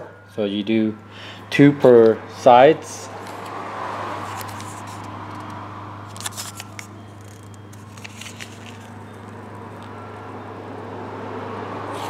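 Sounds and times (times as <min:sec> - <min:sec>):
foil packets crinkling: 0:06.1 - 0:09.5.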